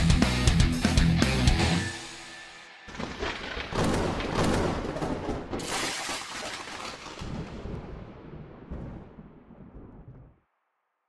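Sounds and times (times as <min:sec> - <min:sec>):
thunder crashing and rumbling: 0:02.9 - 0:06.1, 0:07.0 - 0:10.4.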